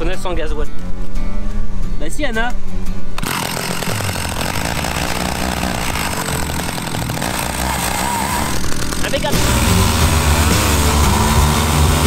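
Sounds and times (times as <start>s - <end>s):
chainsaw engine running: 3.2s - 12.0s.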